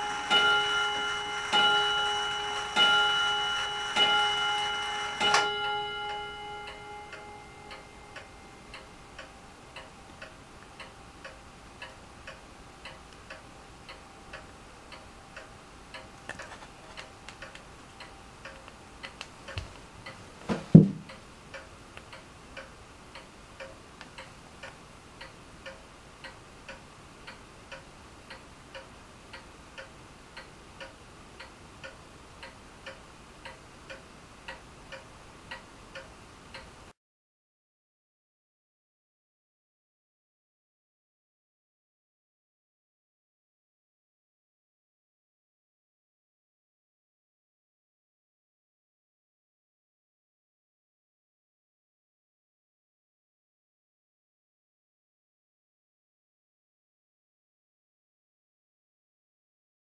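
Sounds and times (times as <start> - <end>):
clock chime ringing: 0.0 - 9.3
clock ticking: 0.0 - 36.8
sharp knock: 20.5 - 21.1.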